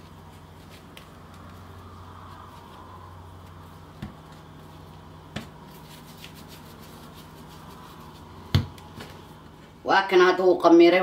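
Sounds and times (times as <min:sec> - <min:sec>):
hands kneading dough: 0:00.0 - 0:09.8
steady low hum: 0:00.0 - 0:11.0
dough thumping on countertop: 0:03.9 - 0:04.4, 0:05.3 - 0:05.6, 0:08.4 - 0:09.2.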